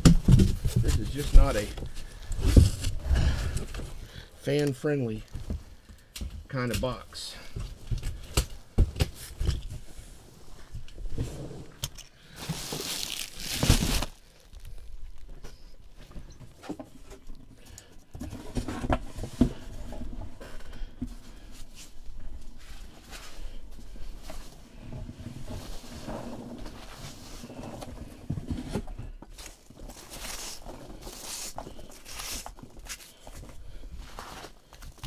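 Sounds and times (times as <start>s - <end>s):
cardboard box packing rustling: 0.0s - 4.1s, 12.3s - 17.0s, 18.1s - 35.0s.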